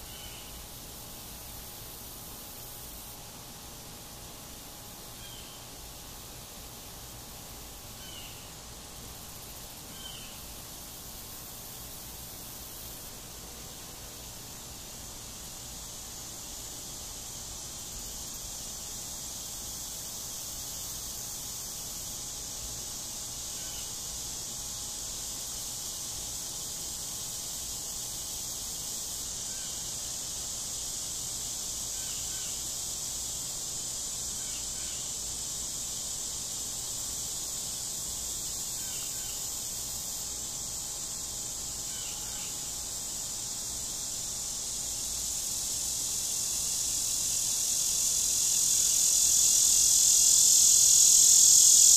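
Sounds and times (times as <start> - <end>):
high-pitched insect chorus: 0.0 - 51.9.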